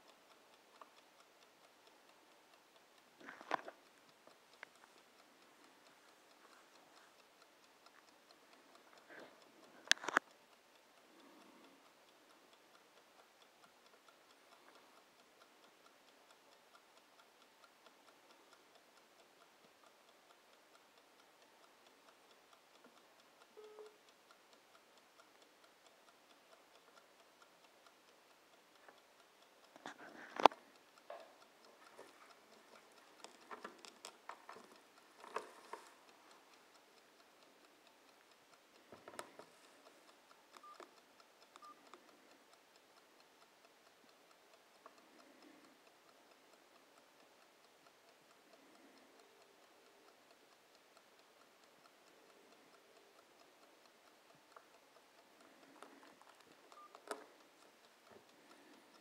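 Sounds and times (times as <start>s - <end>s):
kitchen timer ticking: 0.0s - 59.0s.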